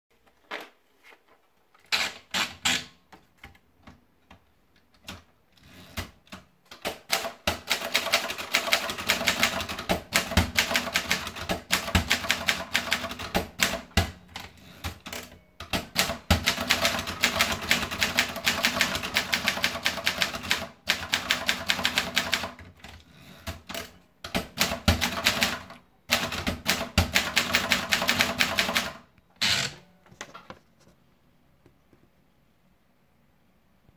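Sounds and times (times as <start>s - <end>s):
typewriter keys clacking: 14.8s - 28.9s.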